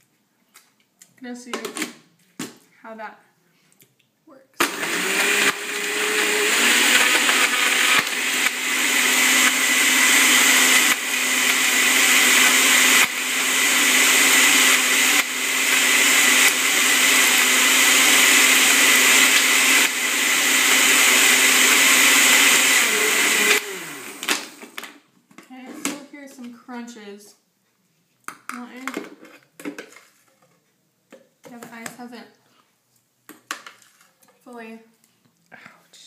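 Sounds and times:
blender running: 0:04.6 - 0:24.9.

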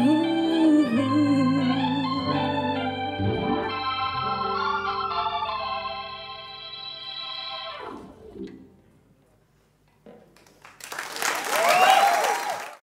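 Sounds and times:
held organ chord: 0:00.0 - 0:07.8
audience applause: 0:10.4 - 0:12.8
cheering whoops: 0:11.4 - 0:12.8.

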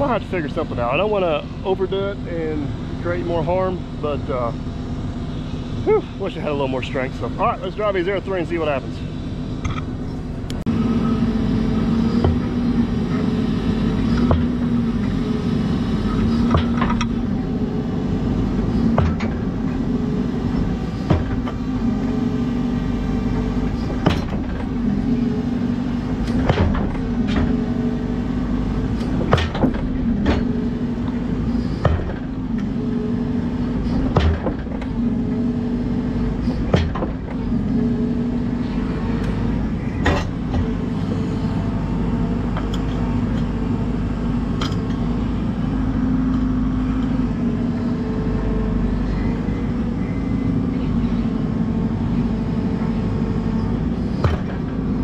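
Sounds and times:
excavator engine under load: 0:00.0 - 0:55.0.

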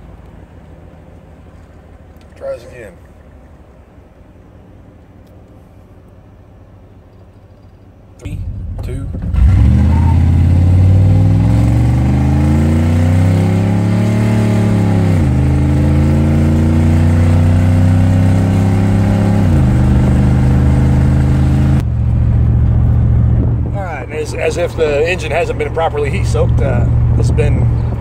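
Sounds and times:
truck engine accelerating: 0:08.2 - 0:28.0.

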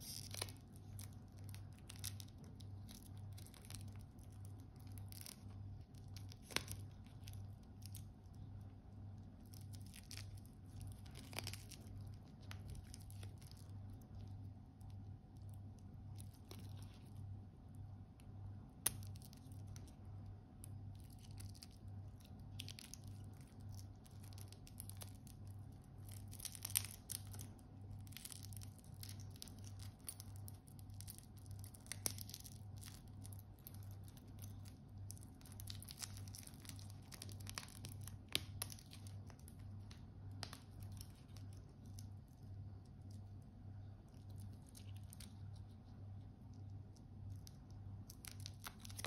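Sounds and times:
plastic film crinkling and tearing: 0:00.0 - 0:08.4, 0:09.2 - 0:17.2, 0:20.6 - 0:43.4, 0:44.1 - 0:45.9, 0:46.6 - 0:49.0.

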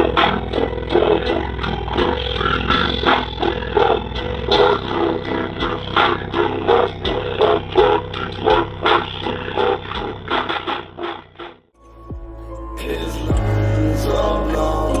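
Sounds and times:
loud pulsing bass beat: 0:00.0 - 0:15.0.

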